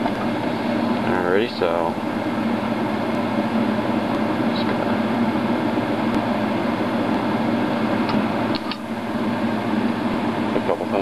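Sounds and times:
steady mechanical hum: 0:00.0 - 0:11.0.

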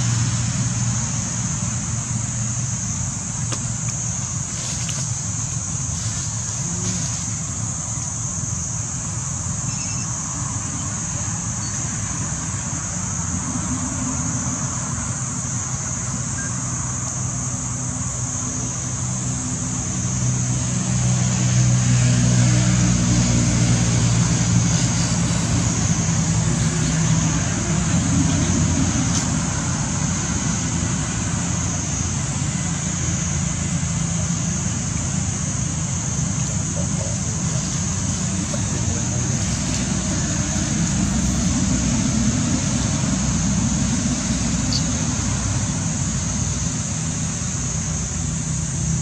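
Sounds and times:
vehicle engine hum: 0:00.0 - 0:49.0.

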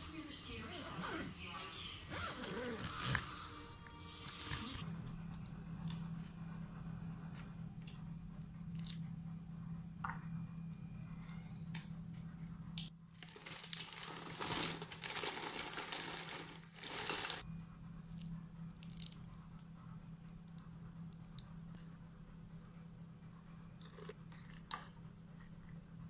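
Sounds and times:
steady low hum: 0:00.0 - 0:14.1, 0:17.4 - 0:26.0
cereal pouring into bowl: 0:13.2 - 0:17.4.

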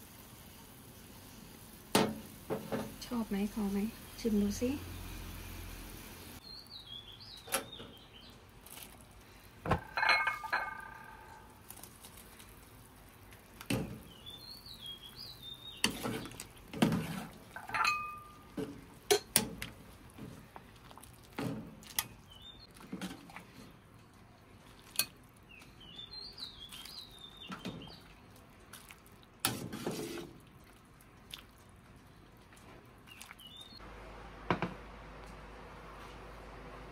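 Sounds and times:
small birds chirping: 0:06.4 - 0:08.5, 0:13.3 - 0:16.4, 0:22.0 - 0:22.8, 0:25.4 - 0:28.4, 0:33.0 - 0:33.8
metal ladle clinking on pot: 0:09.7 - 0:11.4, 0:17.6 - 0:18.4.

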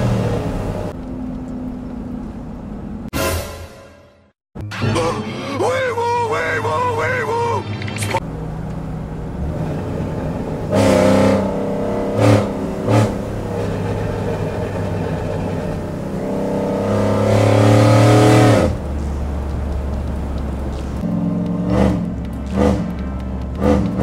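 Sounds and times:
pickup engine revving: 0:08.2 - 0:24.0.

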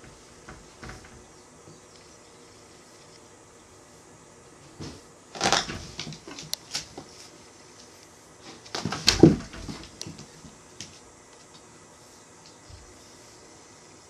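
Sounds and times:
cats scuffling: 0:04.5 - 0:11.7
thump: 0:08.8 - 0:09.8.

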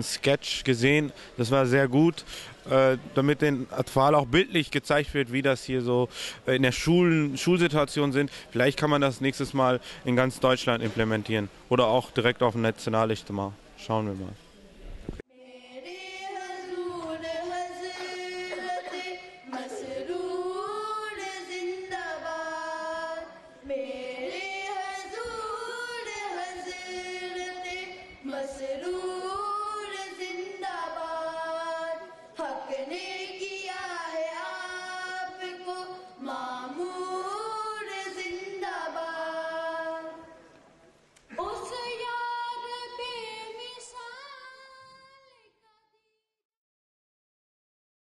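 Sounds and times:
boys' choir singing: 0:15.6 - 0:40.2.

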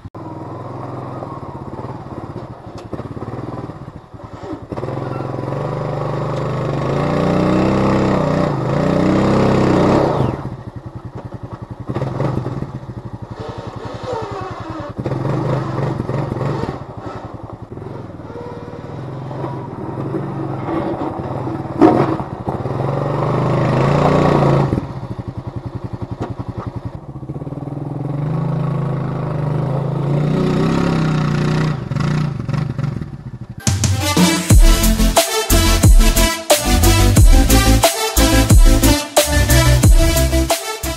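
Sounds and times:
quad engine revving: 0:00.2 - 0:26.7, 0:27.4 - 0:33.4
sharp bang: 0:33.6 - 0:40.9.

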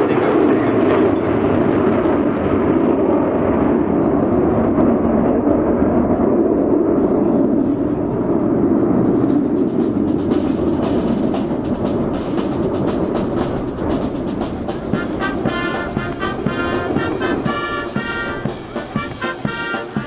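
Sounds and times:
jet fighters roaring overhead: 0:00.0 - 0:20.0
military brass band playing: 0:09.5 - 0:20.0.

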